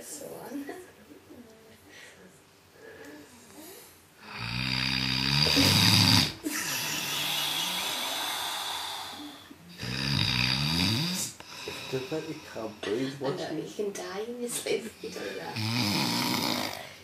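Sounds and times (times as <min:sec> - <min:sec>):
noisy breath: 0:01.8 - 0:04.6, 0:05.4 - 0:09.9, 0:11.0 - 0:13.2
man snoring: 0:04.2 - 0:12.6, 0:15.1 - 0:17.0.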